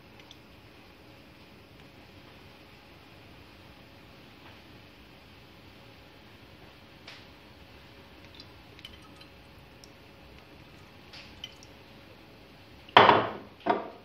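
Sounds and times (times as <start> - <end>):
liquid dripping into a spoon: 8.2 - 11.8.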